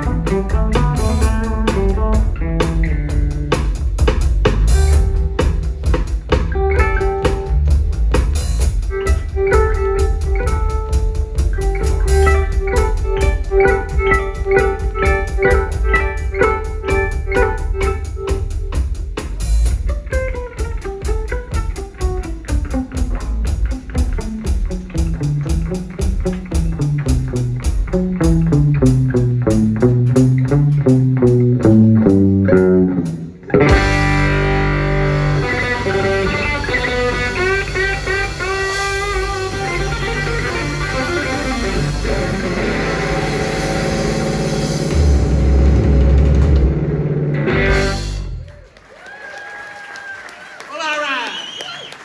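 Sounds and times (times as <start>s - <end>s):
rock band playing: 0.0s - 49.9s
electric guitar runs: 6.3s - 18.7s, 19.9s - 48.6s.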